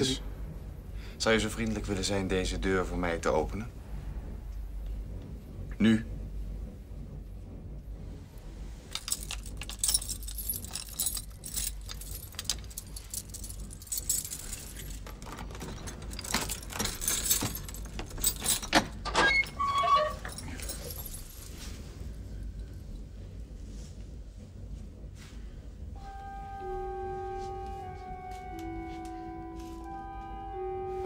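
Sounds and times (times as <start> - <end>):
keys jangling: 8.9 - 21.6
wooden door creaking open: 15.0 - 21.0.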